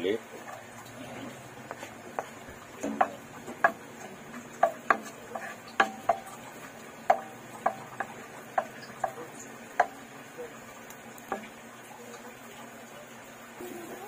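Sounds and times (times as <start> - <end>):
garlic sizzling in oil: 0.0 - 14.0
wooden spoon knocking on pan: 1.5 - 10.1, 11.2 - 11.6.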